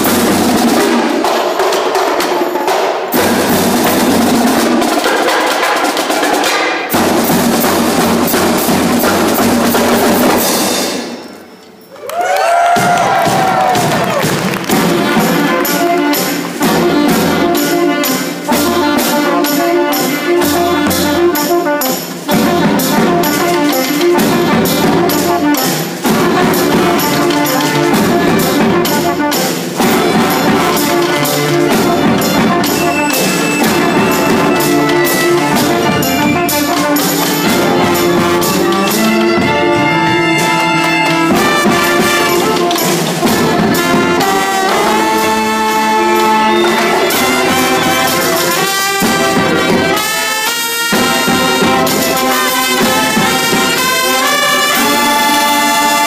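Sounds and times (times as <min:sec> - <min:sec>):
drums with steady beat: 0:00.0 - 0:11.4, 0:12.7 - 0:56.0
brass band playing: 0:00.0 - 0:11.6, 0:12.6 - 0:56.0.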